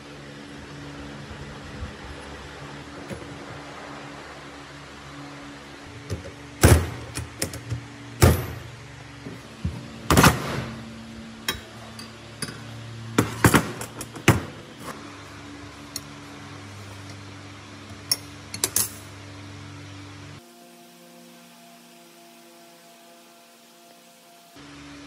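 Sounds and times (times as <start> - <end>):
steady low hum: 0.0 - 25.0
metal knocks and clinks of tools: 11.5 - 14.5.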